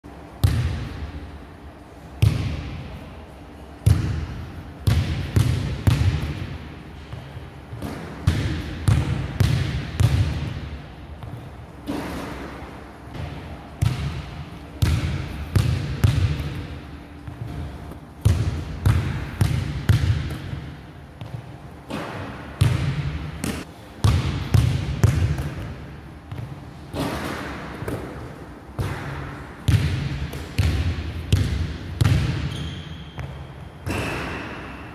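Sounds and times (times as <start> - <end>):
basketball bouncing on wooden floor: 17.2 - 26.5, 28.8 - 33.4.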